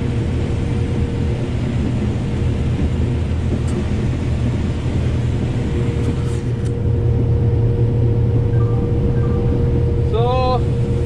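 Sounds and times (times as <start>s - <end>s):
combine harvester drone: 0.0s - 11.0s
mid-pitched whine: 6.6s - 11.0s.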